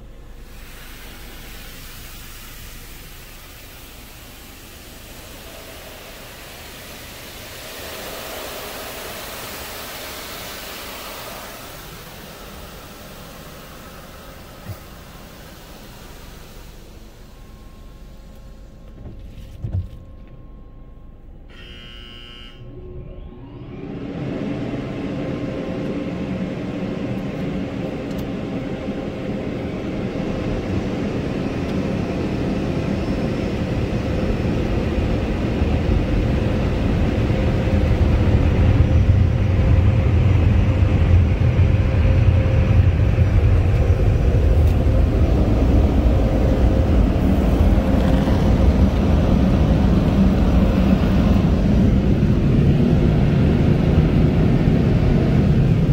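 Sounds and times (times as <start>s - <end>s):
car wash air dryers blowing: 0.0s - 55.9s
short buzzer: 21.5s - 22.9s.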